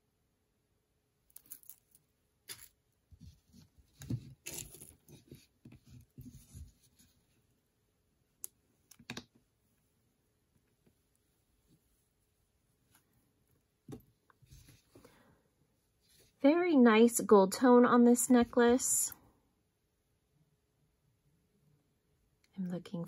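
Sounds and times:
jewelry clicking and rustling: 1.3 - 2.8, 4.0 - 5.2.

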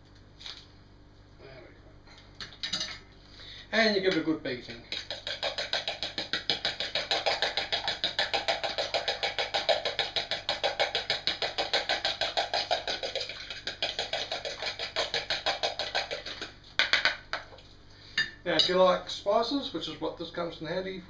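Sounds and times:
fork beating egg in glass: 4.9 - 17.2.

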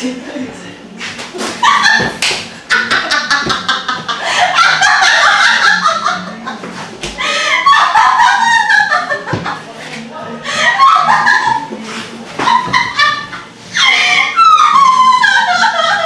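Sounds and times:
high-pitched laughter: 7.2 - 9.4, 10.5 - 11.7, 12.4 - 16.0.

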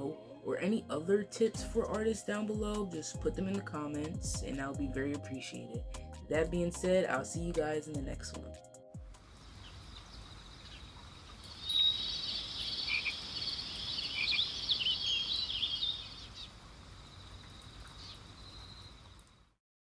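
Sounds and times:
high chirping and trilling: 11.5 - 16.5.

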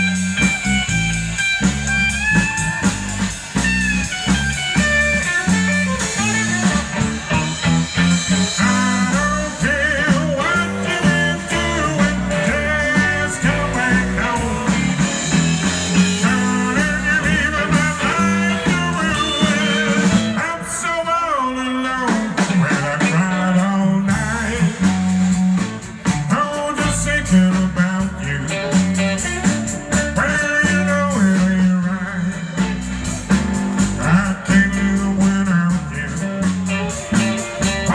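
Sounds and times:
electric guitar soloing: 0.0 - 26.2
rock band playing: 0.0 - 37.9.

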